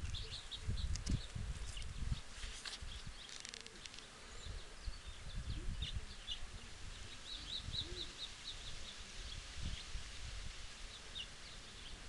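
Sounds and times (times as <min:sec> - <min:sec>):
small birds chirping: 0:00.0 - 0:12.0
dry crackle: 0:01.8 - 0:04.1.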